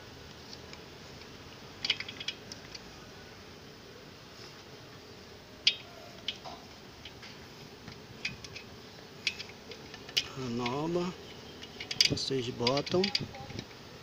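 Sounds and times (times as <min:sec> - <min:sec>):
steady low hiss: 0:00.0 - 0:14.0
metal strap clicking and rattling: 0:00.5 - 0:02.8, 0:05.6 - 0:13.8.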